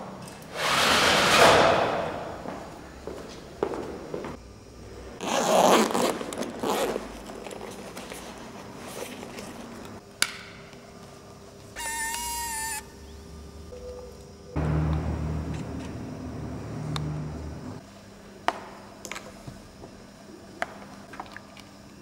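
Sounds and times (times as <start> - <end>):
bag zipper pulled open: 5.2 - 7.1.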